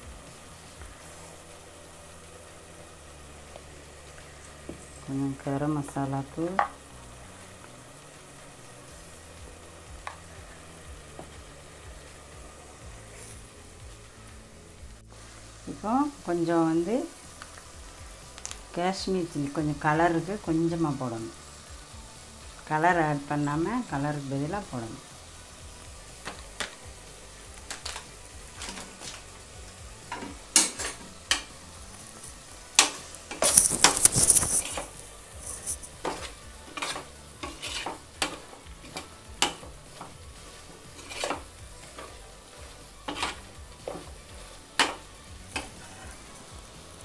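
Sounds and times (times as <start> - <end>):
masala sizzling: 0.0 - 47.0
spoon clinking and scraping pot: 30.1 - 31.5, 32.2 - 40.1, 40.9 - 42.2, 43.1 - 44.1.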